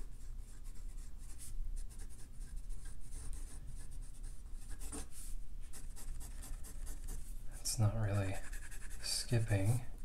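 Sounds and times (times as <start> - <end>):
pen nib scratching on paper: 5.7 - 7.2, 8.3 - 9.2.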